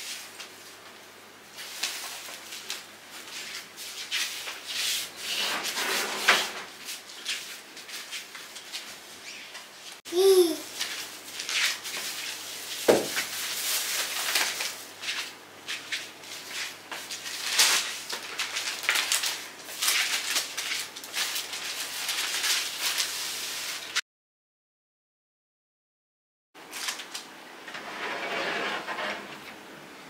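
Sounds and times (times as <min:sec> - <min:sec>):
plastic and fabric bags rustling: 0:10.7 - 0:24.0
knock on wooden shelf: 0:12.9 - 0:13.1.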